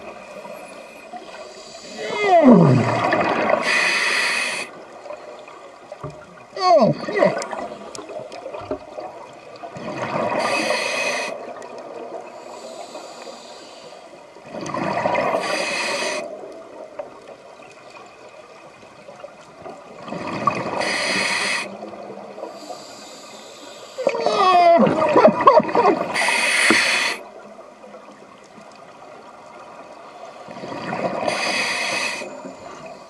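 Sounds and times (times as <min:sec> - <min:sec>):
diver breathing through regulator: 0:03.5 - 0:04.8, 0:10.3 - 0:11.4, 0:12.4 - 0:14.1, 0:15.3 - 0:16.3, 0:20.7 - 0:21.8, 0:26.1 - 0:27.3, 0:31.2 - 0:33.0.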